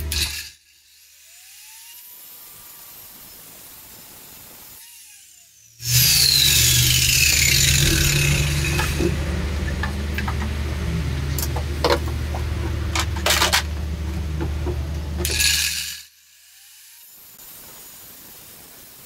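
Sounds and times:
electric grinder whining: 4.6 - 16.0
metal scraping and knocking: 6.5 - 15.7.

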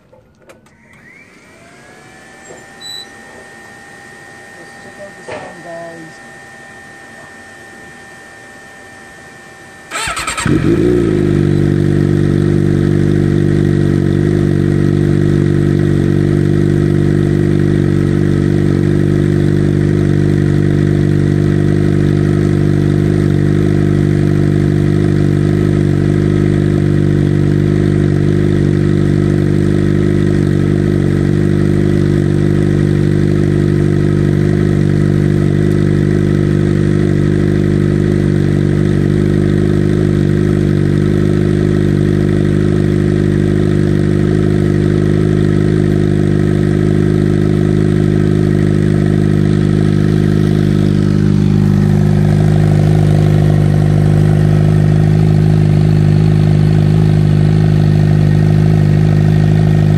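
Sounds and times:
motorcycle engine idling: 9.9 - 59.9.

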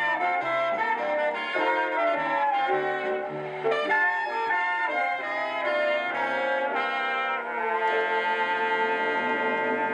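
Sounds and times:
brass band music from record: 0.0 - 9.9.

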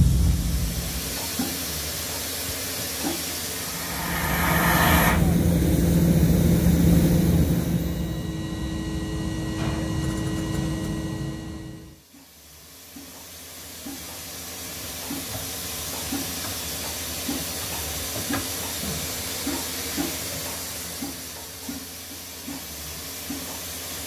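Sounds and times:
rush of steam: 0.0 - 8.7
steam locomotive hissing: 0.0 - 10.8.

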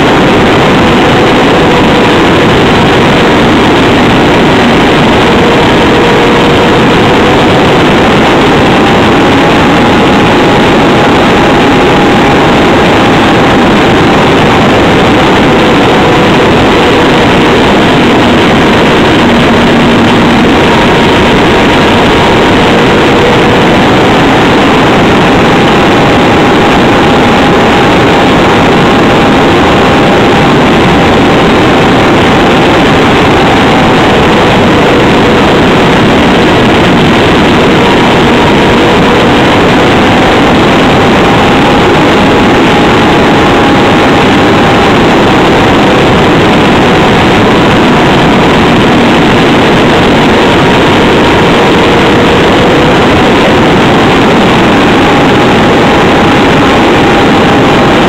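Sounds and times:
model engine running loud: 0.0 - 58.0
wind rush: 0.0 - 58.0.

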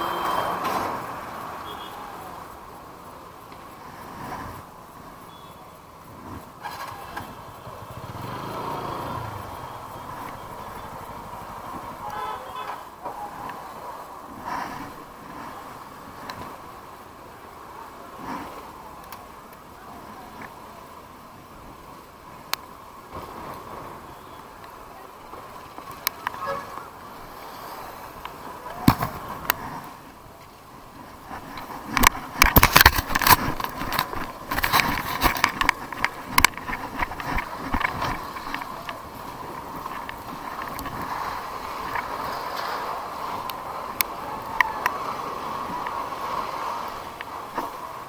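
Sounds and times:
motorcycle engine running: 6.7 - 12.0.

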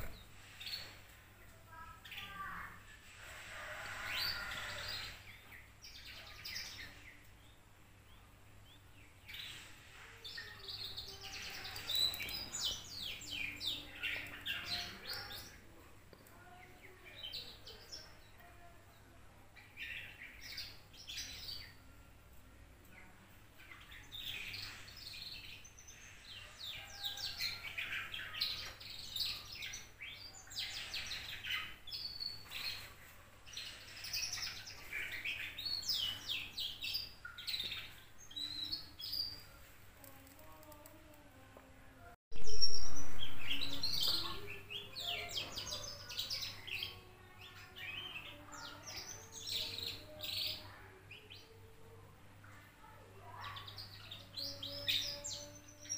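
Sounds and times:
canary twittering: 23.8 - 39.5.

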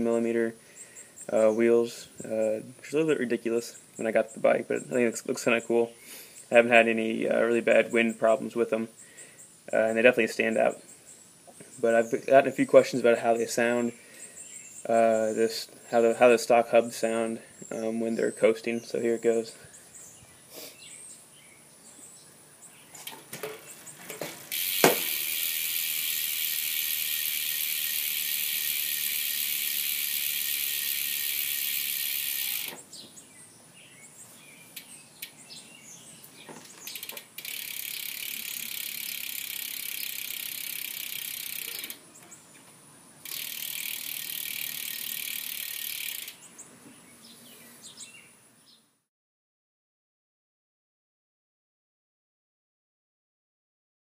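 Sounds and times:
bicycle freehub ticking buzz: 24.5 - 32.8, 36.8 - 42.0, 43.2 - 46.5.

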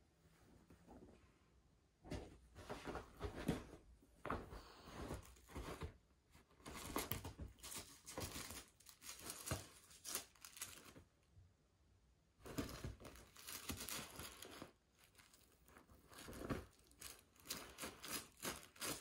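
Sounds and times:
bedsheets rustling: 2.0 - 11.1, 12.4 - 19.0
cats scrabbling on covers: 2.1 - 6.0, 6.6 - 11.0, 12.4 - 19.0.

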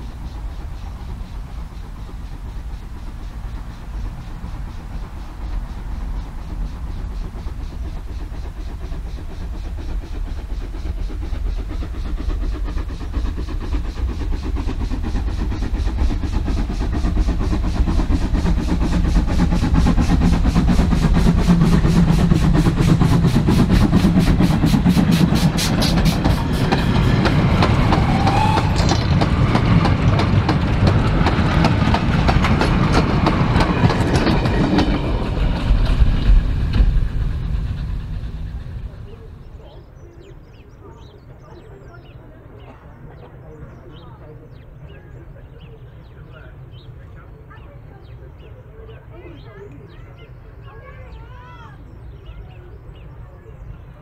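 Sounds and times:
steam locomotive exhaust beats: 0.0 - 54.0
goods wagons clattering: 24.6 - 39.0.

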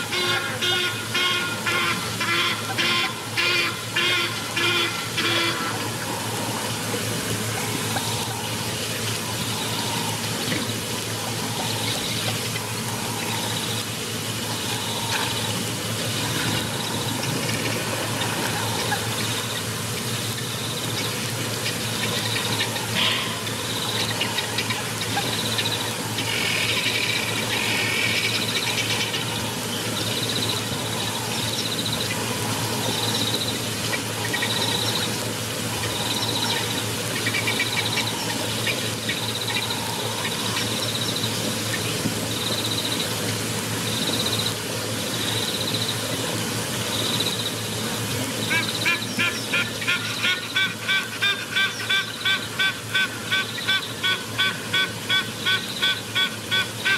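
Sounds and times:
rushing water: 0.0 - 56.9
insects chirping: 5.6 - 50.6
birds chirping: 7.6 - 46.0.

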